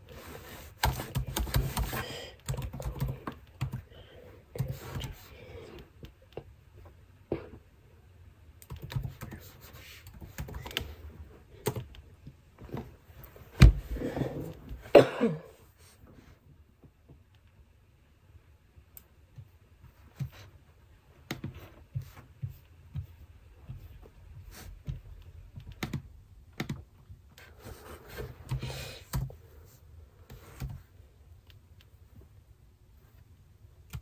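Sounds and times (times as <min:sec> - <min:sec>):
computer keyboard typing: 0:00.8 - 0:03.9, 0:08.6 - 0:11.0, 0:11.6 - 0:12.0, 0:24.8 - 0:26.9.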